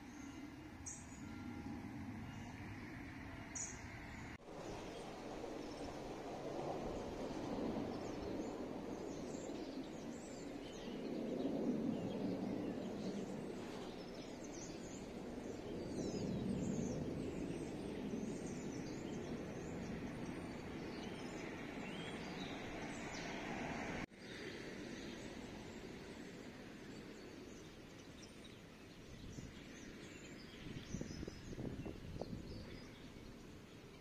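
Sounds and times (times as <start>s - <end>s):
small birds chirping: 7.9s - 23.5s, 24.2s - 34.0s.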